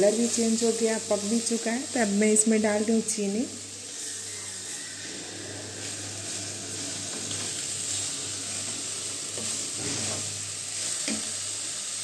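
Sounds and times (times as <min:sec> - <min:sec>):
carrots sizzling in a pan: 0:00.0 - 0:12.0
wooden spatula scraping a pan: 0:03.9 - 0:11.6.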